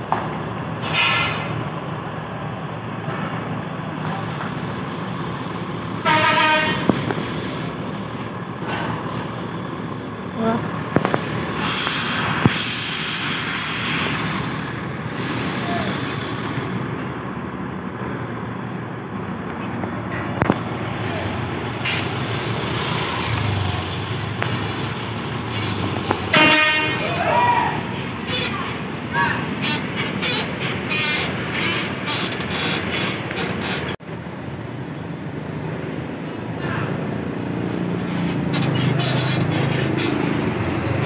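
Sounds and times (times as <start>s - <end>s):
bus engines idling: 0.0s - 41.0s
bus horn: 6.0s - 7.0s, 25.6s - 33.8s
air hiss: 11.6s - 14.4s.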